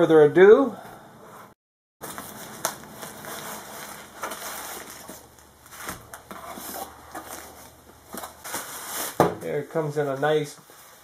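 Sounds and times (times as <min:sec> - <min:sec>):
paper and bubble-wrap crinkling: 0:02.0 - 0:09.2.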